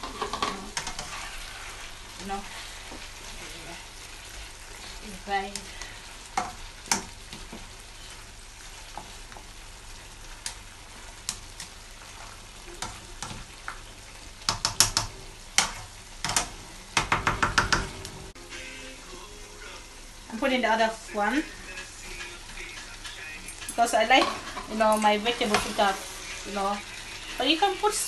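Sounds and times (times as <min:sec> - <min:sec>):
spatula scraping a frying pan: 0:00.0 - 0:05.0
steady sizzle: 0:00.0 - 0:28.0
spatula tapping on pan: 0:06.4 - 0:07.6, 0:14.4 - 0:18.1.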